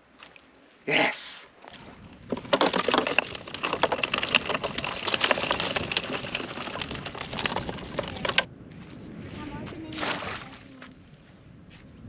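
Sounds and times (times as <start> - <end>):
shellfish claws clattering on plastic: 2.2 - 8.5.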